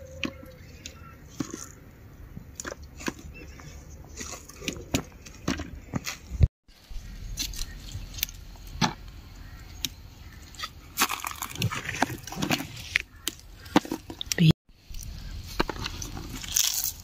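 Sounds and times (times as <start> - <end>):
leaves rustling: 14.8 - 17.0.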